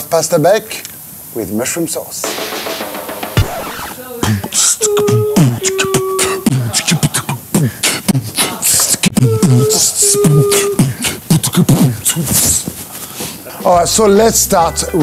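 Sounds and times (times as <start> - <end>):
beatbox vocal percussion: 2.2 - 12.8
short sung notes: 3.9 - 12.3.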